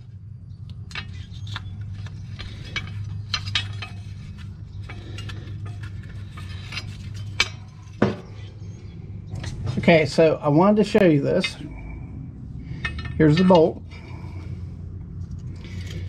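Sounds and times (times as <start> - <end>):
steady low hum: 0.0 - 16.0
metal clinks and knocks: 0.8 - 8.6, 12.6 - 14.6.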